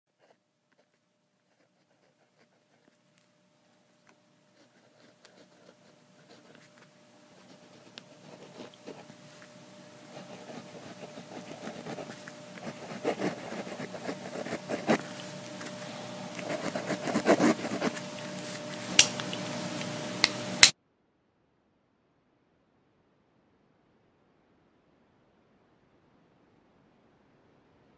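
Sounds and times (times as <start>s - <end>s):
faint steady hum: 0.1s - 27.9s
scratchy rubbing noise: 4.6s - 18.9s.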